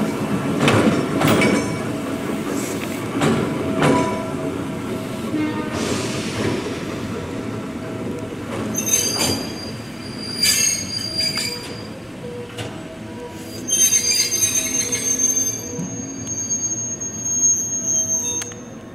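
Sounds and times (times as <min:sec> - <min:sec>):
railcar wheels squealing: 0:08.5 - 0:18.9.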